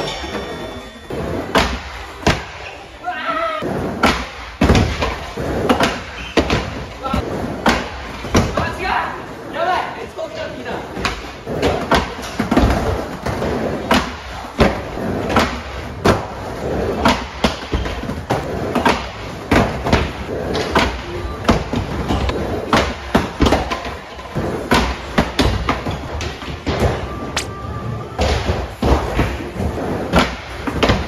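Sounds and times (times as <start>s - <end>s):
skateboard clacks and thuds: 4.0s - 6.9s, 11.0s - 27.2s, 28.2s - 31.0s
skateboard wheels rolling on ramp: 10.7s - 31.0s.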